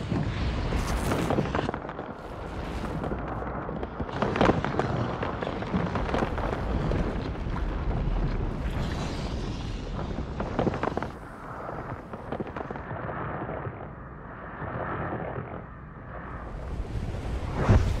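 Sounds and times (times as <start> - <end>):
crackling and crashing rock: 0.0 - 13.9
deep earthquake rumble: 0.0 - 18.0.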